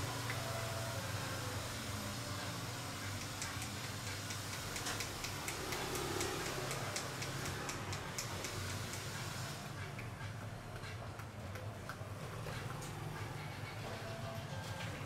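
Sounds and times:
light sharp clicks: 3.2s - 9.1s.

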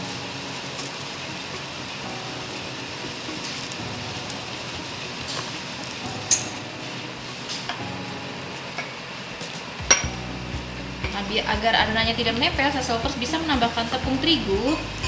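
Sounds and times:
kitchen room noise: 0.0s - 15.0s.

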